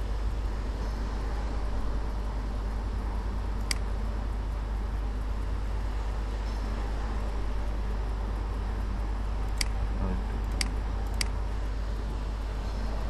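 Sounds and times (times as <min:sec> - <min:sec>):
background hum and hiss: 0:00.0 - 0:13.0
computer mouse click: 0:03.6 - 0:03.9, 0:09.5 - 0:09.8, 0:10.4 - 0:11.4.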